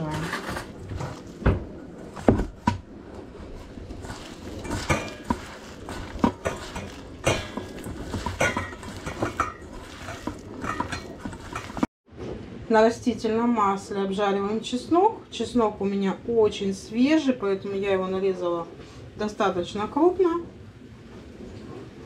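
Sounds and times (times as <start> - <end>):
hand mixing meat in metal bowl: 2.1 - 11.9.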